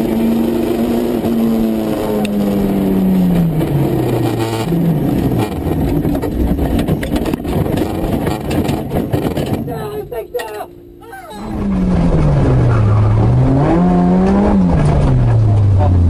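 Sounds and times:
rally car engine revving: 0.0 - 9.7, 11.5 - 16.0
road and tyre noise: 0.0 - 16.0
knocks and clatter: 5.7 - 9.7.

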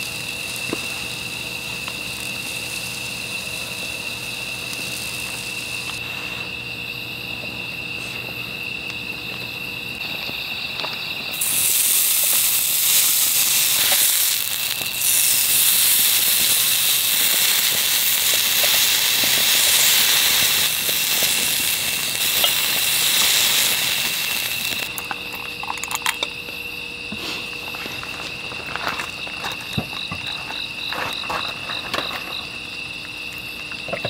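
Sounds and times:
beef sizzling on grill pan: 0.0 - 6.0, 11.3 - 24.9.

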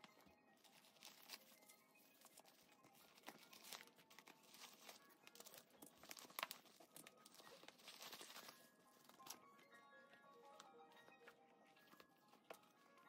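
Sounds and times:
tissue paper crinkling: 0.6 - 9.6.

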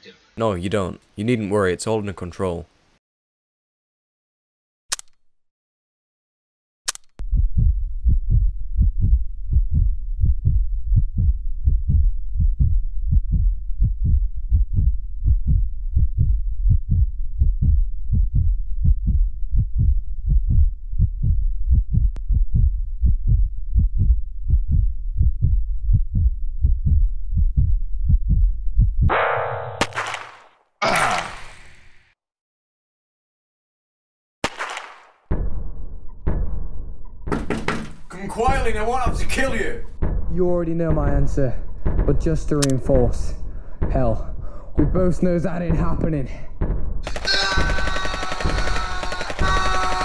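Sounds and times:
heartbeat thumps: 7.2 - 29.1, 39.9 - 50.0
steady low rumble: 7.2 - 29.1.

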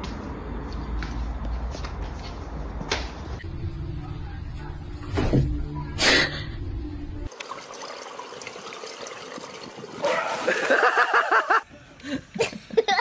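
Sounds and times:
low hum: 3.4 - 7.3
pool water lapping and splashing: 7.3 - 11.6
person laughing: 10.4 - 13.0.

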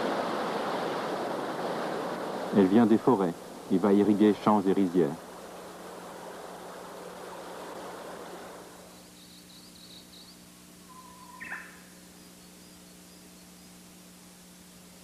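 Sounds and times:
stream rushing over rocks: 0.0 - 8.9
faint bird calls: 5.2 - 14.2.

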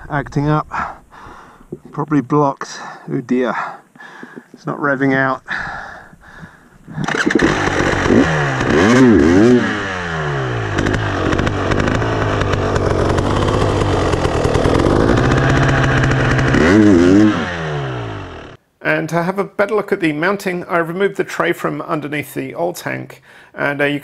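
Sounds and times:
two-stroke motorcycle engine revving: 7.0 - 18.6.

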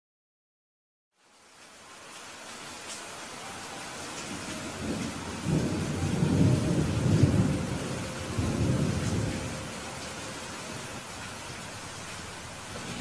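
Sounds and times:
rain hissing: 1.1 - 13.0
low rumble of thunder: 4.2 - 13.0.

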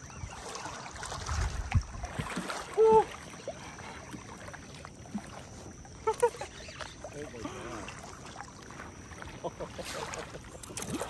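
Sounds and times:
shallow water sloshing and splashing: 0.0 - 11.0
person crying out: 2.8 - 3.1.

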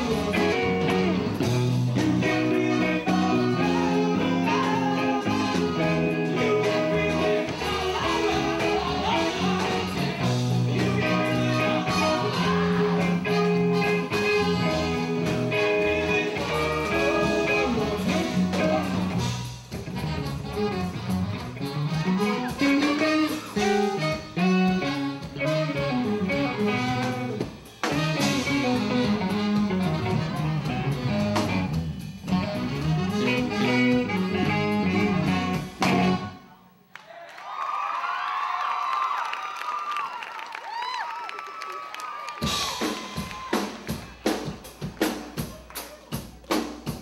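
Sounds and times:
electric guitar: 0.0 - 36.5
alto saxophone melody: 0.0 - 36.6
drum kit: 0.0 - 36.6, 42.4 - 47.0.

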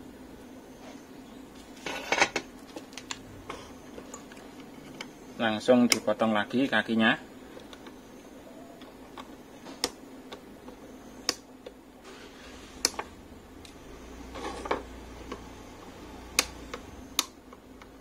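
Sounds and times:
side cutters snipping wire: 16.2 - 17.4.

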